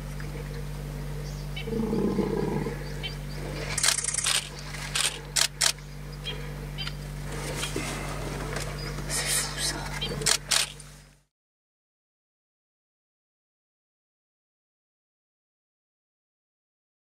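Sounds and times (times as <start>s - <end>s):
lion growl: 1.6s - 3.8s.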